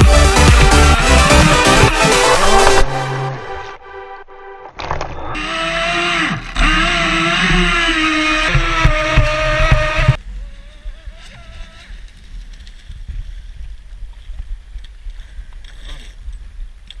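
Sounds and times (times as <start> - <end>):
electric motor high whine: 5.2 - 10.2.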